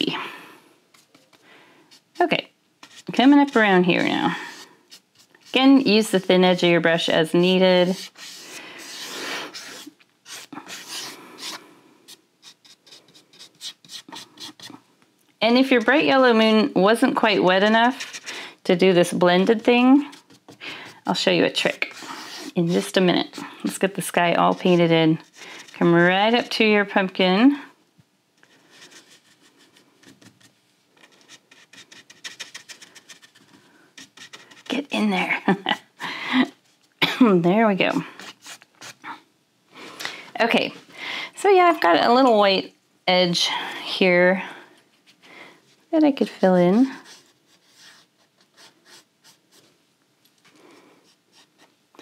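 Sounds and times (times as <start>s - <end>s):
paintbrush strokes on canvas: 0.9s - 14.8s, 17.1s - 26.7s, 45.0s - 49.8s.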